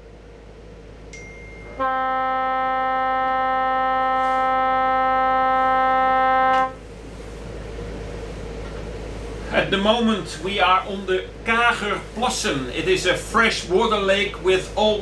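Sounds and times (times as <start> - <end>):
foghorn blast: 1.6 - 7.0.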